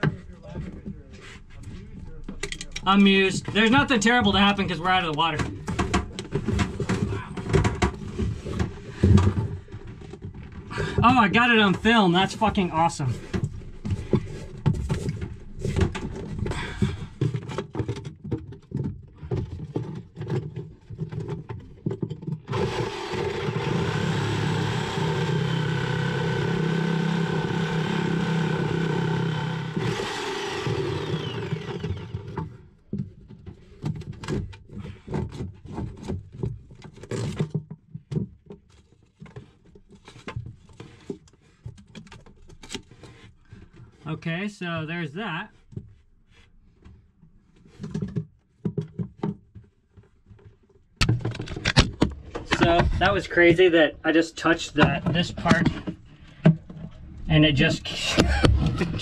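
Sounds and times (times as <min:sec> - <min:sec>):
knocks and scraping from handling: 0:00.0 - 0:11.1, 0:11.7 - 0:22.5, 0:30.7 - 0:44.0, 0:45.5 - 0:53.7, 0:54.4 - 0:57.3
reciprocating saw cutting: 0:22.5 - 0:32.3.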